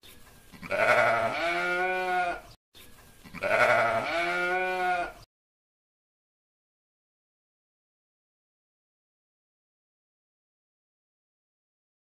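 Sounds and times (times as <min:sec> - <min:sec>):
sheep bleating: 0:00.6 - 0:02.5, 0:03.2 - 0:05.3.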